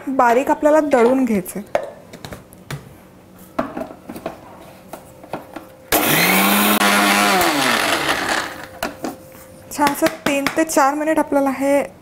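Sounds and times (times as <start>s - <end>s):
mixer grinder motor whine: 5.9s - 8.8s.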